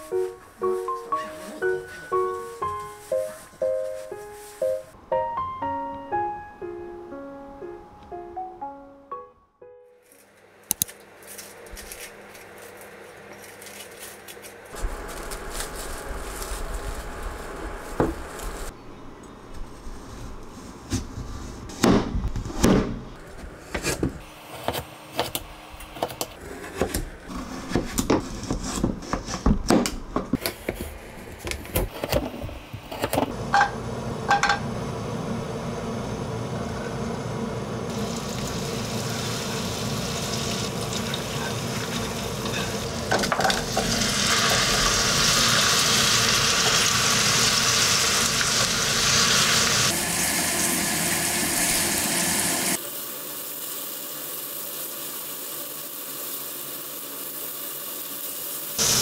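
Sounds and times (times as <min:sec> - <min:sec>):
squash sizzling in butter: 0:37.9 - 0:59.0.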